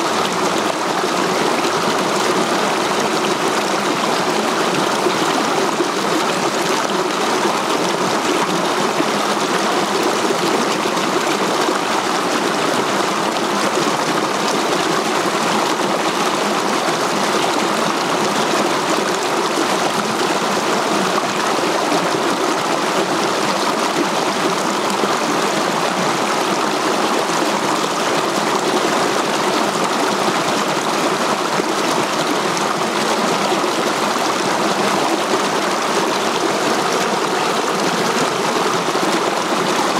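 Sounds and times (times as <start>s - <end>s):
stream rushing over boulders: 0.0s - 39.9s.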